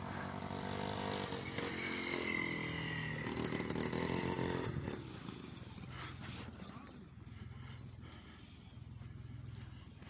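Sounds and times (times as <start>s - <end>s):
small motorcycle engine passing: 0.0s - 7.4s.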